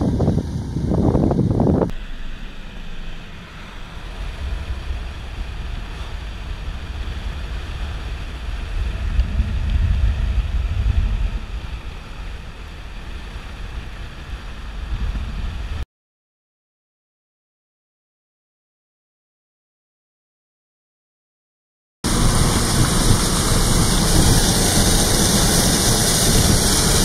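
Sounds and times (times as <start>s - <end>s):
wind buffeting the microphone: 0.0s - 2.0s, 4.1s - 15.8s, 22.1s - 27.0s.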